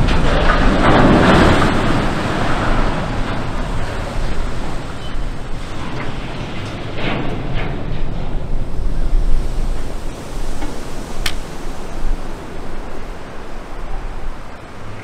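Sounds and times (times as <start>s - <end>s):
rushing water over bank: 0.0s - 6.5s, 9.2s - 15.0s
wind buffeting microphone: 0.0s - 15.0s
sharp click: 11.2s - 11.4s.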